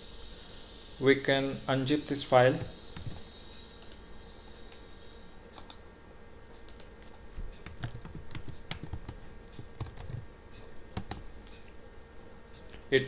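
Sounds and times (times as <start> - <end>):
computer keyboard typing: 2.6 - 3.2, 5.6 - 5.8, 6.7 - 10.2, 10.9 - 11.3.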